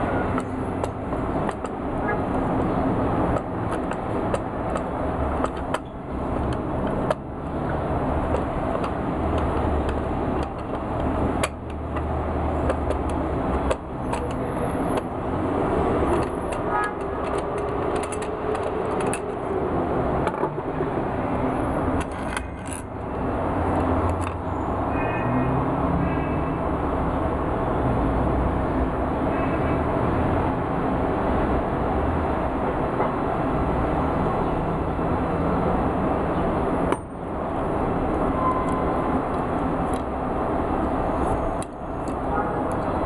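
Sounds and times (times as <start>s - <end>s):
screwdriver clicking and scraping: 0.2s - 1.8s, 3.3s - 15.1s, 15.7s - 19.4s, 21.9s - 23.0s.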